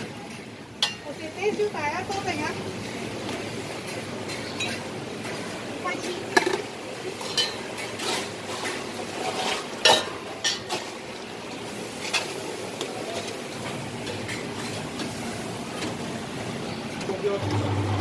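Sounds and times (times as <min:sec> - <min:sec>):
metal mugs and spoons clinking: 0:07.2 - 0:08.2.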